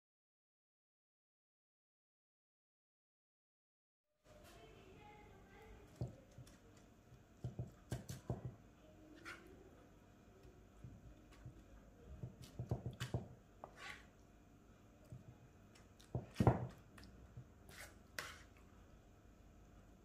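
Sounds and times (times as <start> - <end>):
spoon spreading wet sauce: 15.0 - 18.7.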